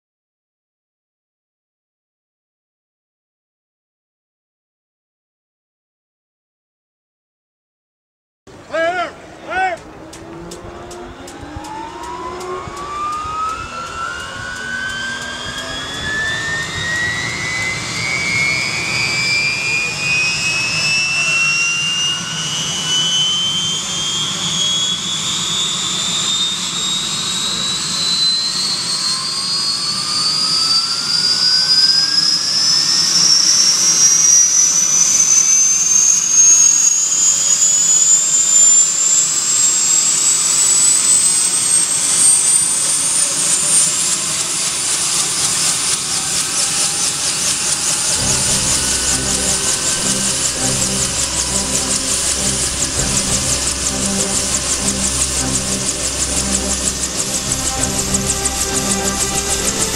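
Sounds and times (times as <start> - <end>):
turbine whine climbing in pitch: 9.0 - 59.9
low rumble: 47.9 - 59.9.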